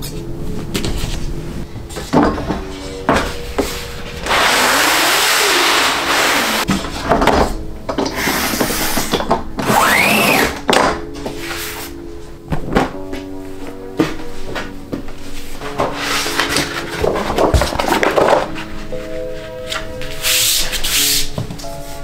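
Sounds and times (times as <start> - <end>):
cutter head scraping along track: 4.2 - 6.7.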